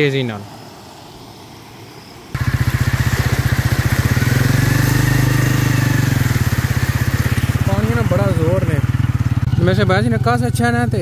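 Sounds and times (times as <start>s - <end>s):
motorcycle engine running: 2.4s - 11.0s.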